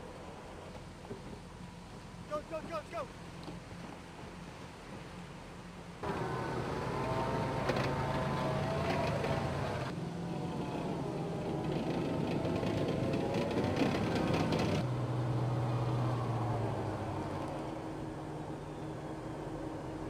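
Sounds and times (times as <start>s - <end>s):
diesel engine running: 6.0s - 20.0s
tracks churning through surf: 6.0s - 20.0s.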